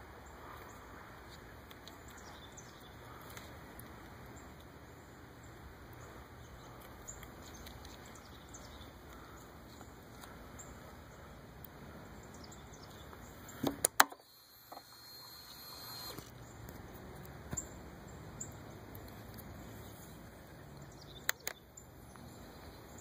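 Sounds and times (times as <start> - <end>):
faint rustle with ticks: 0.4 - 4.8, 5.5 - 13.6.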